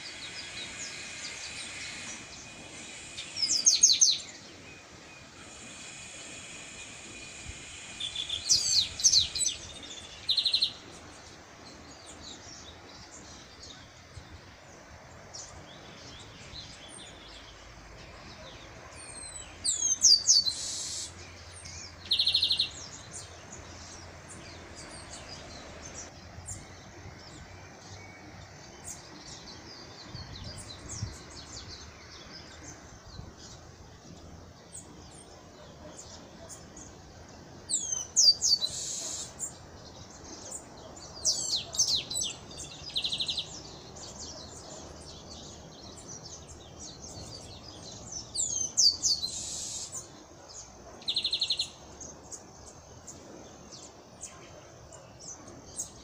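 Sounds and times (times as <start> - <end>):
bird singing whistled notes: 0.0 - 11.0, 15.4 - 33.6, 37.7 - 52.2.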